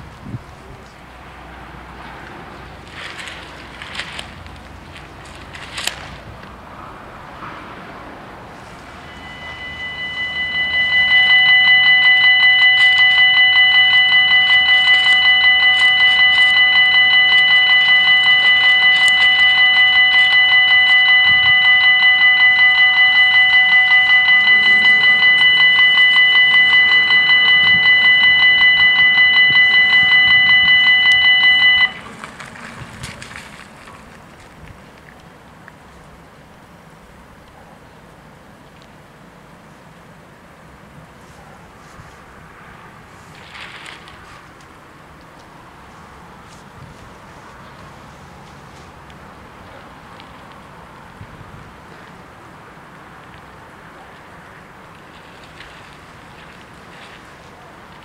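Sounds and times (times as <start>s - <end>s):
level crossing warning bells: 8.5s - 32.8s.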